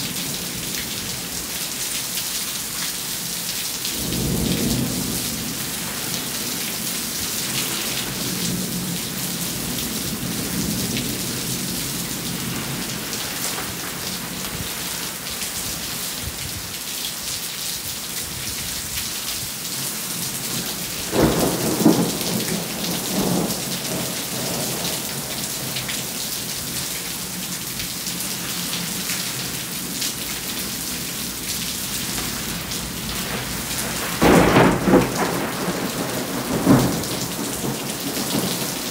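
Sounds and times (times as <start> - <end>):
rain falling: 0.0 - 38.9
thunder rumbling: 20.9 - 26.8, 28.8 - 38.9.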